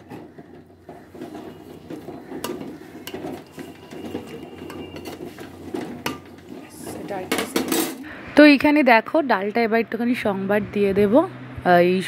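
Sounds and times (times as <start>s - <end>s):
metal ladle scraping pot: 0.0s - 8.1s.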